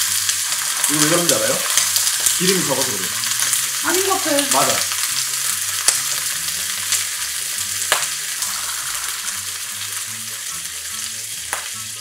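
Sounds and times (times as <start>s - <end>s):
clams sizzling in hot oil: 0.0s - 12.0s
sharp pop of oil: 7.9s - 8.2s.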